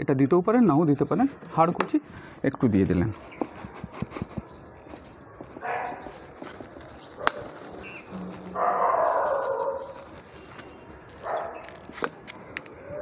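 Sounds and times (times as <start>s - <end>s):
dog barking: 5.6s - 6.2s, 7.2s - 7.6s, 8.6s - 10.0s, 11.2s - 11.7s.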